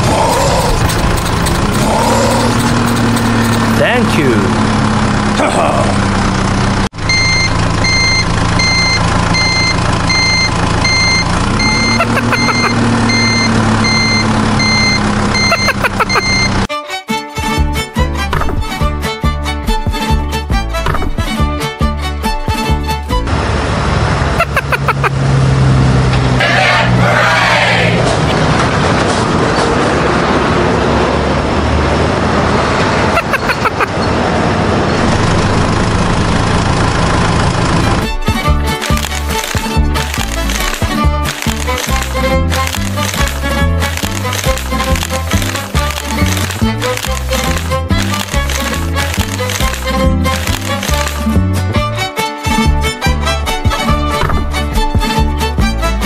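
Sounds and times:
engine drone: 0:00.0 - 0:16.7, 0:22.9 - 0:51.9
reversing alarm beeping: 0:07.1 - 0:16.7
machine running steadily: 0:35.0 - 0:51.4.

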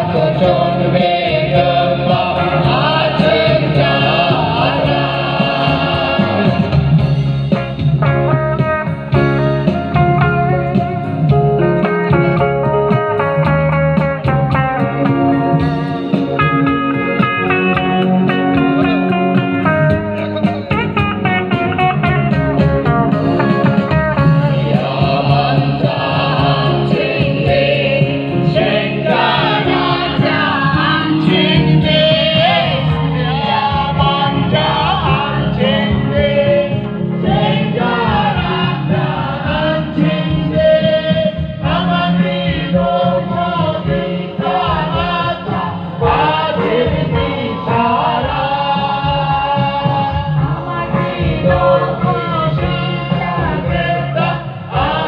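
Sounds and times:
group of people singing: 0:00.0 - 0:07.5, 0:23.1 - 0:55.0
amplified instrumental accompaniment: 0:00.0 - 0:55.0.

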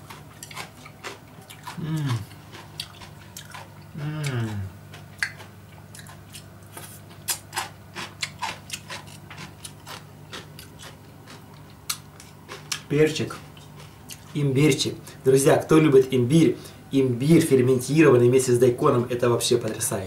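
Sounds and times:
person chewing and crunching: 0:00.0 - 0:15.3
person humming: 0:01.7 - 0:02.3, 0:03.9 - 0:04.8.

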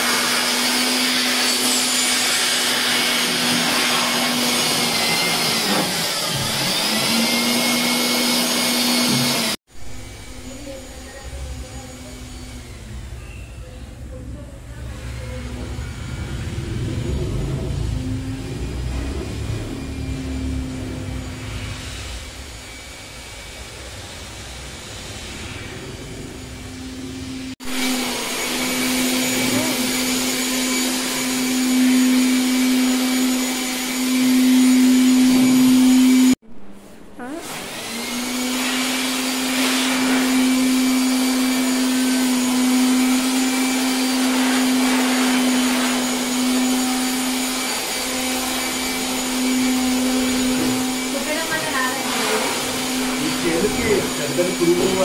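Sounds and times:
electric motor humming: 0:23.8 - 0:36.4, 0:37.2 - 0:55.0.

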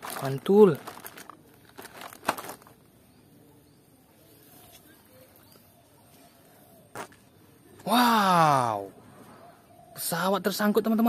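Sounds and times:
plastic packaging crinkling: 0:00.0 - 0:02.9
faint outdoor background: 0:00.0 - 0:11.0.

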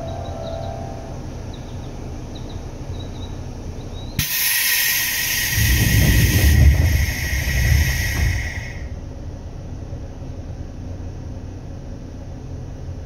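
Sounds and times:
compressed air hissing: 0:04.2 - 0:09.0
low rumble: 0:05.1 - 0:09.4.

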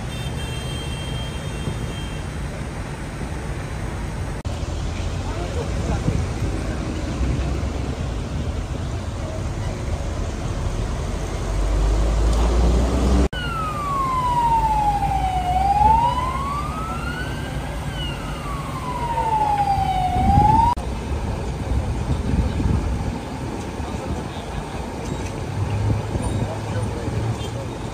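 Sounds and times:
low rumble of street traffic: 0:00.0 - 0:27.9
emergency vehicle siren wailing: 0:13.3 - 0:20.8.

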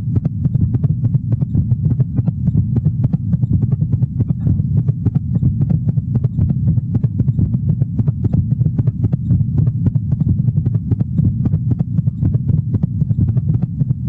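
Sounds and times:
low heartbeat thumps: 0:00.0 - 0:14.0
steady low hum: 0:00.0 - 0:14.0.

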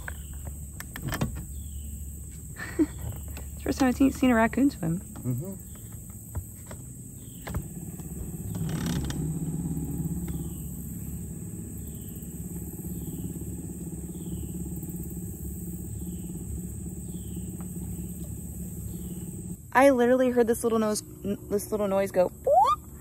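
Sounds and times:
boat motor humming: 0:00.0 - 0:23.0.

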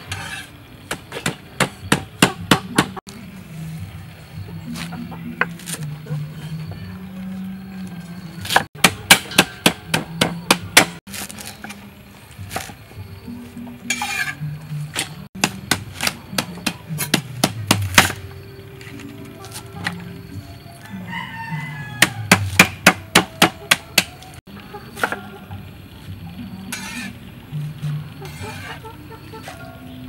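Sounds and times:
cleaver chopping on wooden block: 0:08.5 - 0:11.0, 0:15.4 - 0:18.2, 0:22.0 - 0:24.1.

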